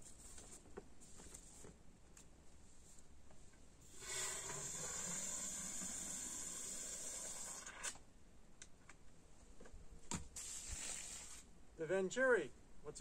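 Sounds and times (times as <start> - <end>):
water jetting from nozzle: 3.9 - 7.9, 10.4 - 11.4.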